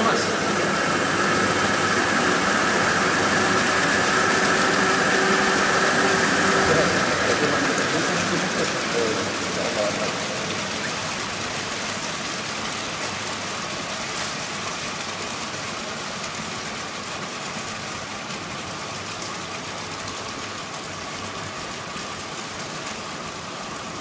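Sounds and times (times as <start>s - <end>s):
machinery humming: 0.0s - 16.0s.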